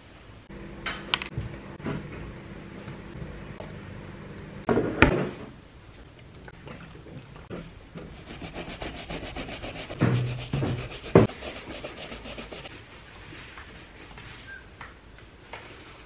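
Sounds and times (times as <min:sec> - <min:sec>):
brush scrubbing rubber sole: 0:08.2 - 0:12.7.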